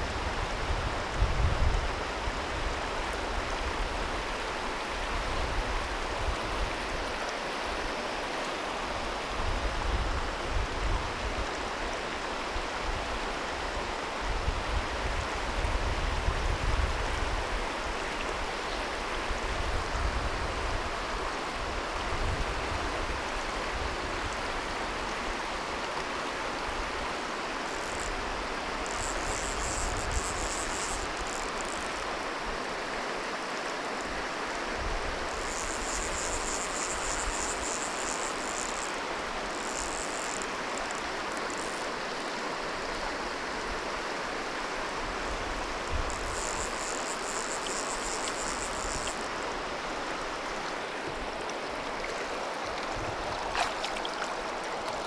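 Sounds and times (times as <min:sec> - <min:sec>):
river rushing over stones: 0:00.0 - 0:55.0
high-pitched insect buzzing: 0:27.6 - 0:32.2, 0:35.3 - 0:42.1, 0:45.9 - 0:49.5.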